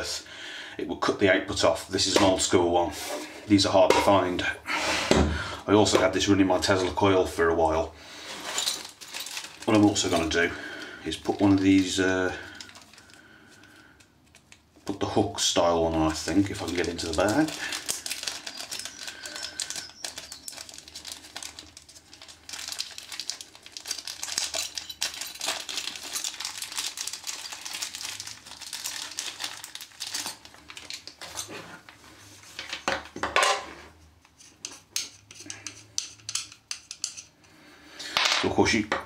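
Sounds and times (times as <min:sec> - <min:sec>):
bag crinkling: 0:08.3 - 0:31.9
small metal parts clinking: 0:08.4 - 0:10.4, 0:16.2 - 0:31.5.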